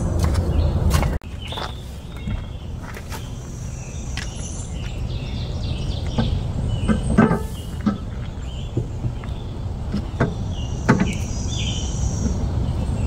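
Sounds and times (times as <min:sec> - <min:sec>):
birds chirping: 0:00.0 - 0:13.0
low wind rumble: 0:00.0 - 0:13.0.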